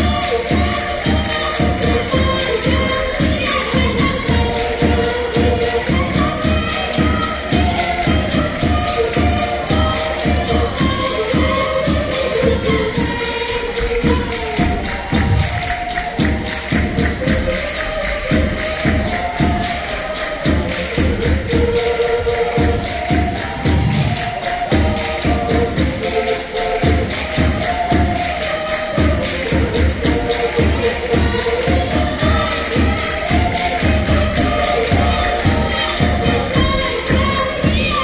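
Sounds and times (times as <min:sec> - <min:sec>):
fast percussion beat: 0:00.0 - 0:38.0.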